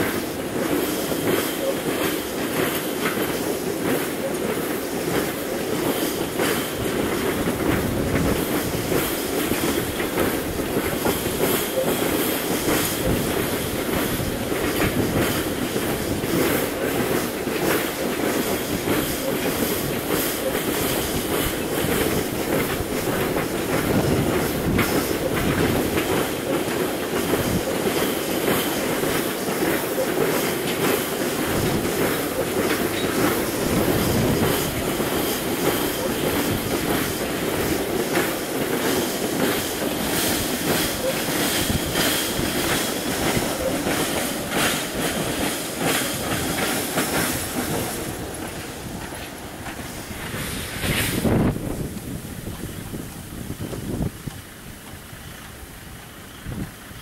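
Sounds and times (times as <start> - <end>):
diesel locomotive rumble: 0.0 - 57.0
wheels clickety-clack over rail joints: 0.0 - 57.0.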